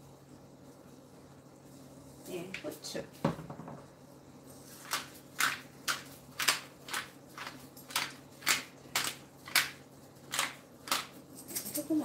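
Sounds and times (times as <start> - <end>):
pepper mill grinding: 4.7 - 12.0.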